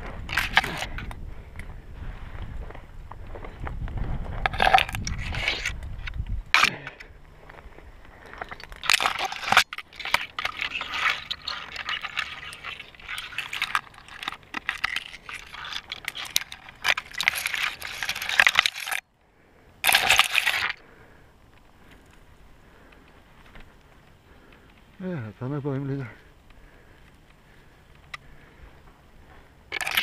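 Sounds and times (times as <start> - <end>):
metal climbing gear clinking: 0.0 - 1.7, 4.4 - 7.1, 8.2 - 19.1, 19.8 - 20.8, 29.7 - 30.0.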